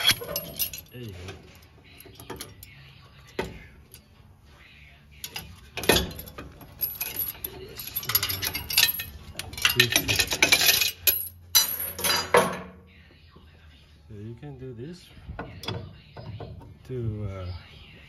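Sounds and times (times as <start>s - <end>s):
metal chain clinking and rattling: 0.0s - 4.2s, 5.2s - 12.7s.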